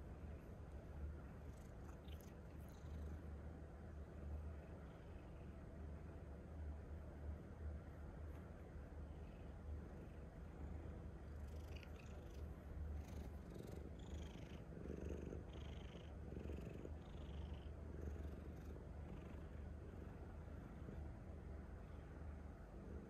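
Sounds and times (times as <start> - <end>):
cat purring: 0.0 - 3.4, 9.1 - 21.2.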